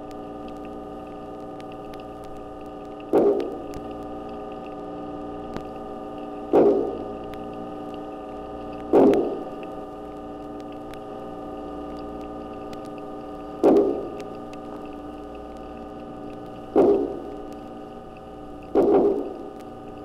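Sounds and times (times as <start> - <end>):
faint ticks: 0.0 - 20.0
steady underwater hum: 0.0 - 20.0
fish making resonant knocks: 3.1 - 3.7, 6.5 - 7.1, 8.9 - 9.5, 13.6 - 14.3, 16.7 - 17.4, 18.7 - 19.5.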